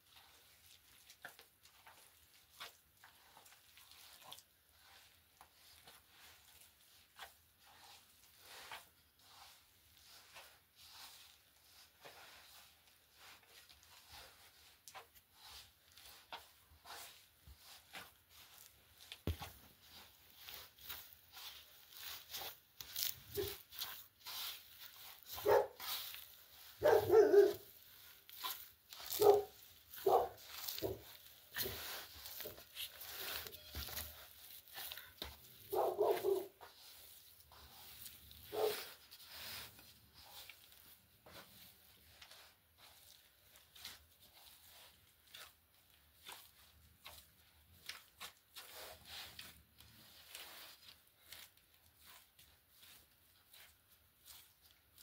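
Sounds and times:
dog barking: 0:25.4 - 0:25.8, 0:26.8 - 0:27.6, 0:29.1 - 0:31.0, 0:35.7 - 0:36.5, 0:38.5 - 0:38.8.

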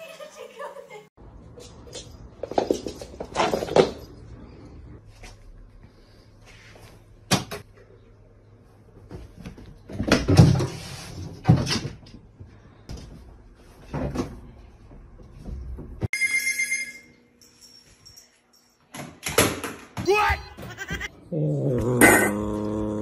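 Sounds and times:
high ringing tone: 0:16.1 - 0:18.8.

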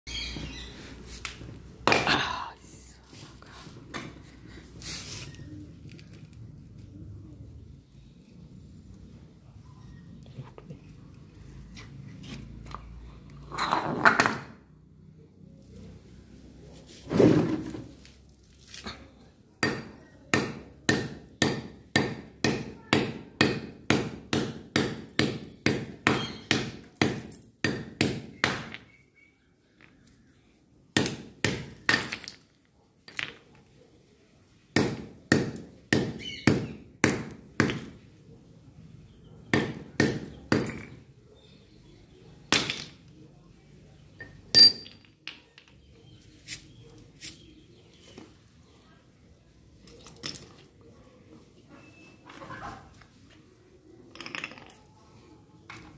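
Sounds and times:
hammer cracking ice on stone: 0:31.0 - 0:32.4, 0:39.6 - 0:41.0.

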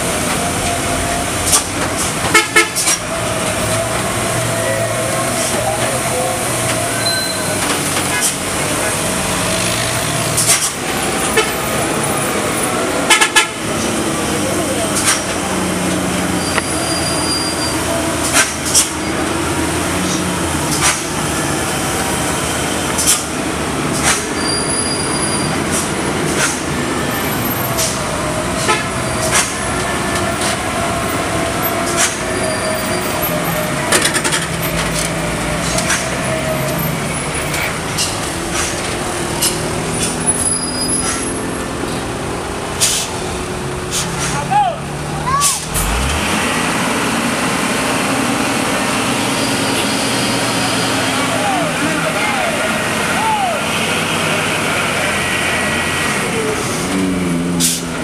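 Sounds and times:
diesel truck engine labouring: 0:00.0 - 0:58.0
drawn-out squeal: 0:02.7 - 0:13.1, 0:13.8 - 0:20.3, 0:24.0 - 0:26.2, 0:26.9 - 0:38.8, 0:39.4 - 0:42.0, 0:48.5 - 0:57.9.

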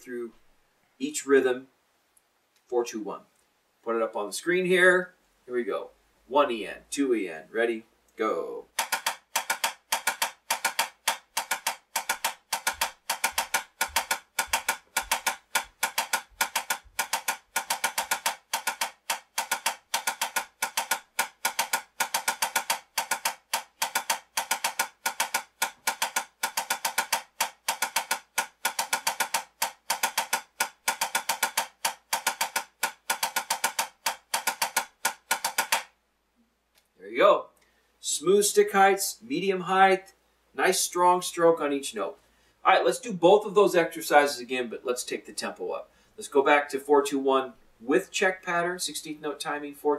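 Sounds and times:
drumsticks on small drum: 0:08.7 - 0:35.9.

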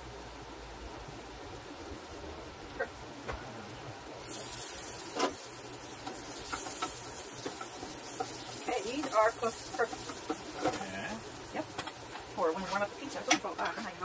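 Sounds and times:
food sizzling in a skillet: 0:04.2 - 0:14.0.

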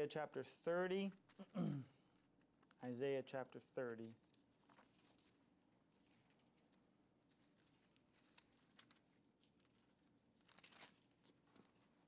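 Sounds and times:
thin pages rustling: 0:03.8 - 0:12.0.

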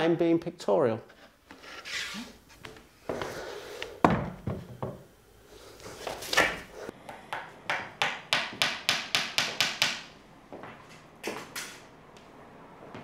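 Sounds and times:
knocks and loud thump: 0:04.0 - 0:05.0
hammer striking a nail: 0:07.1 - 0:10.1.

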